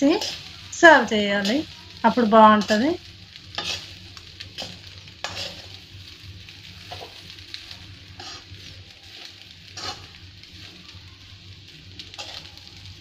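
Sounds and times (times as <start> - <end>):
frying sizzle: 0.0 - 13.0
metal ladle scraping a pan: 3.5 - 5.8, 8.2 - 8.6, 9.2 - 10.2.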